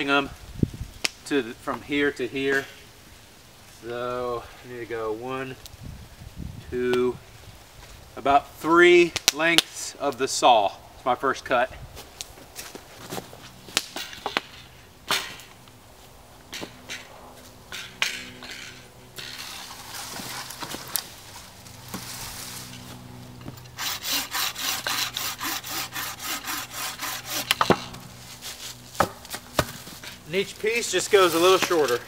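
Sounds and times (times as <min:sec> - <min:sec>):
saw cutting wooden pole: 0:18.0 - 0:20.9, 0:23.4 - 0:32.0.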